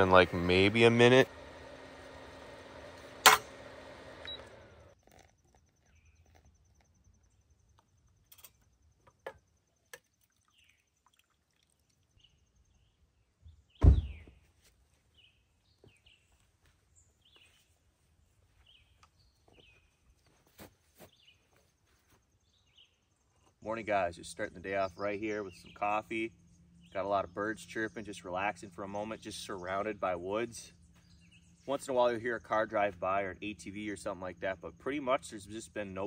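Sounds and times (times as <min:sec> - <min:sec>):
loud thump: 0:13.8 - 0:14.3.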